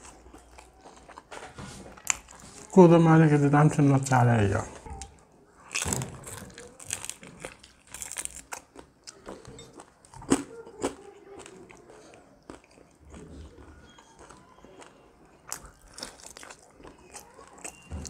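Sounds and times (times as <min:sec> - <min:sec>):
wet chewing mouth sounds: 0:05.0 - 0:18.0
crisp chicken skin crunching: 0:05.6 - 0:10.5, 0:11.4 - 0:18.0.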